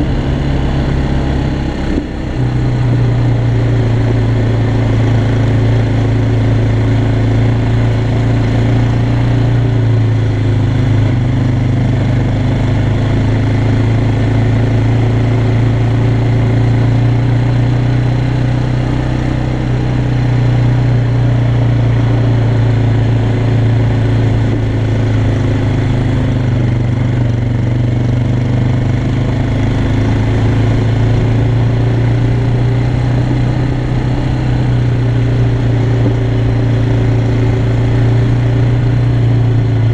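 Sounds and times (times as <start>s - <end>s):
quad bike engine under load: 0.0s - 39.9s.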